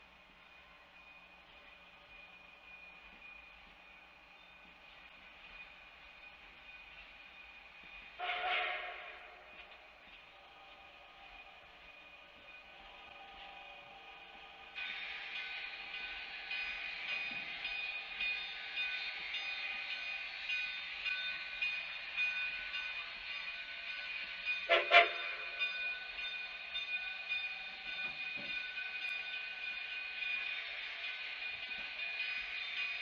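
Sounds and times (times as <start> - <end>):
steam train hissing: 4.9 - 33.0
steam locomotive whistle: 8.2 - 9.4, 24.7 - 25.5.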